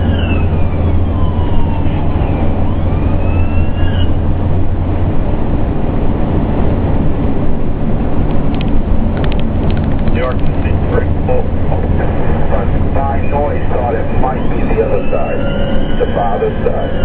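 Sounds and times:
siren wailing: 0.0 - 4.4, 10.7 - 17.0
diesel engine drone: 0.0 - 17.0
tyre road rumble: 0.0 - 17.0.

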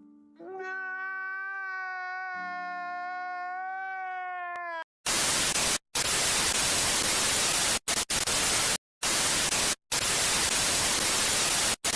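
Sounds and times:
tv static hiss: 5.1 - 11.9.

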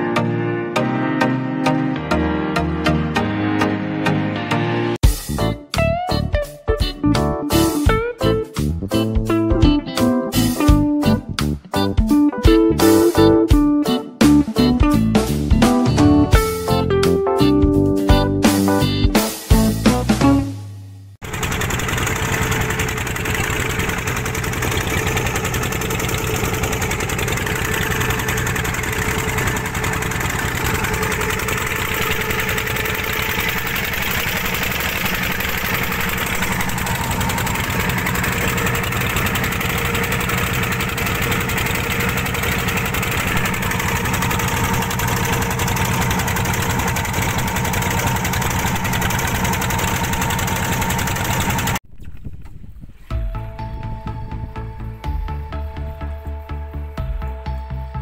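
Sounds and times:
boat engine chugging: 21.2 - 51.8.

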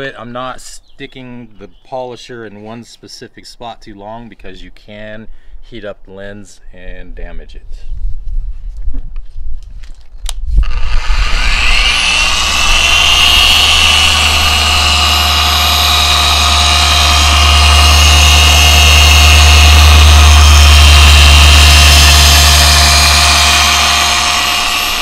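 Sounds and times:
orbital polisher running: 10.6 - 25.0.

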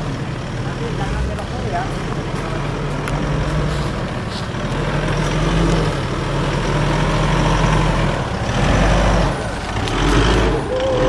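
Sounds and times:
vehicle engine running at low revs: 0.0 - 11.0.

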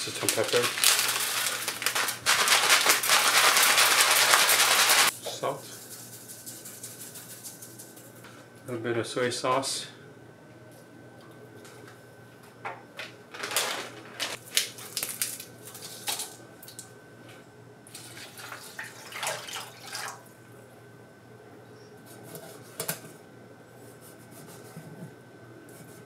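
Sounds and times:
liquid splashing into metal tray: 17.9 - 20.2.

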